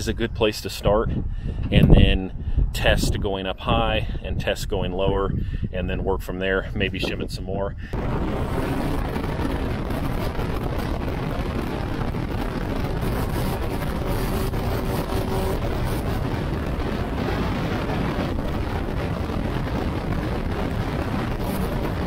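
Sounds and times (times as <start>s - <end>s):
propeller plane engine drone: 8.0s - 22.0s.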